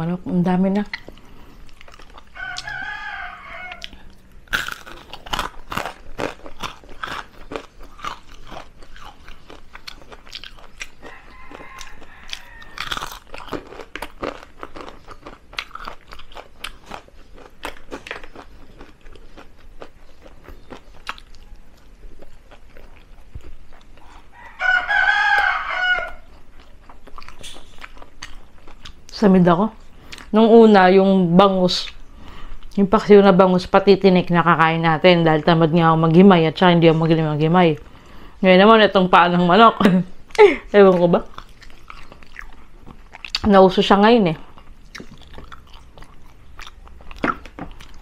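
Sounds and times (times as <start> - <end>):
crunching and chewing: 0.8 - 30.4, 40.3 - 43.5, 44.4 - 48.0
rooster crowing: 2.3 - 4.2, 11.0 - 13.2, 24.0 - 26.4.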